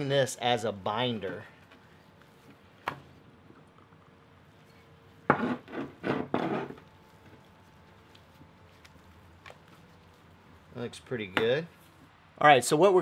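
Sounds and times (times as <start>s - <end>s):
hand rubbing meat on board: 6.6s - 12.0s.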